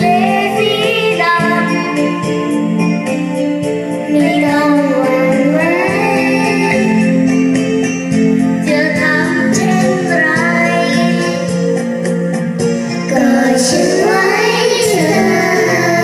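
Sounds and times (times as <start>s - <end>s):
children singing together: 0.0s - 2.8s, 4.0s - 7.3s, 8.6s - 11.8s, 13.1s - 16.0s
instrumental backing music: 0.0s - 16.0s.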